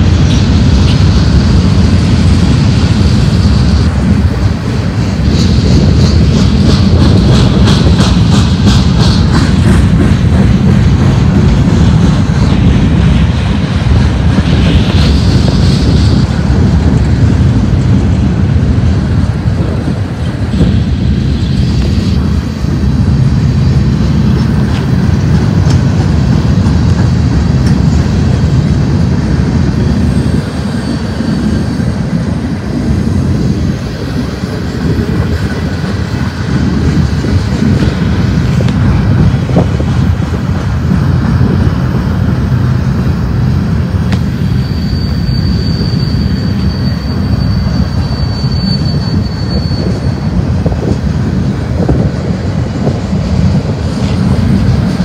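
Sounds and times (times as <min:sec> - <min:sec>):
steel wheels rumbling on rail: 0:00.0 - 0:55.0
high wheel squeal: 0:29.7 - 0:37.8, 0:43.0 - 0:51.0.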